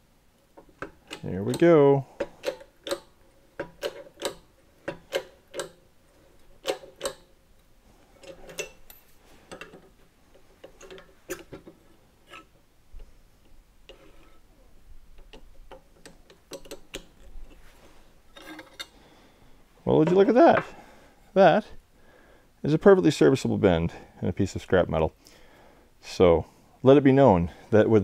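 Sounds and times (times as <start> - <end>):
hydraulic jack metallic clicks: 2.2 - 5.8, 6.6 - 7.3.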